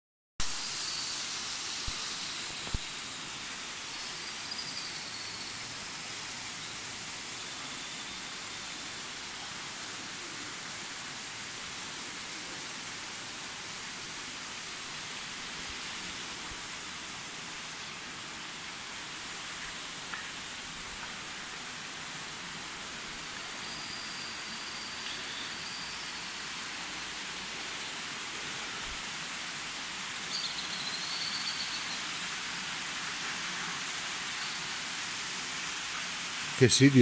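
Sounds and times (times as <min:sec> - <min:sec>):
falling water rushing: 0:32.1 - 0:37.0.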